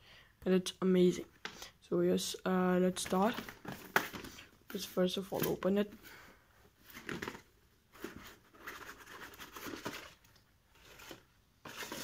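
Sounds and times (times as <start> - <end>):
plastic sleeve scraping and rustling: 6.8 - 12.0.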